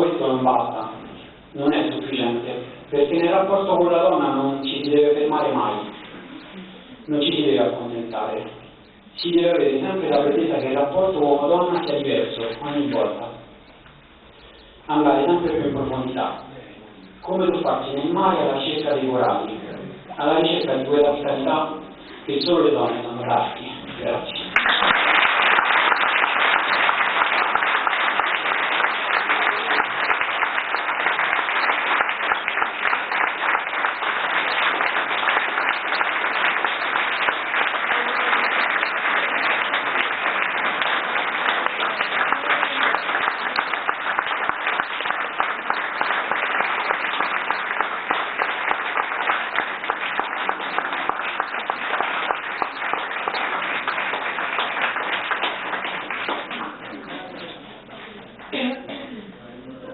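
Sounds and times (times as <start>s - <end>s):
audience applauding: 20.5s - 57.7s.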